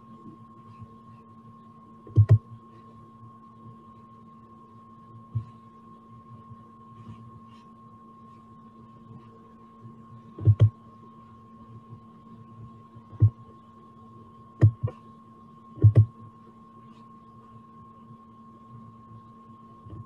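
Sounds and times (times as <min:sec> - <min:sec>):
electrical hum of held tones: 0:00.0 - 0:20.0
sharp knocks: 0:14.6 - 0:14.9.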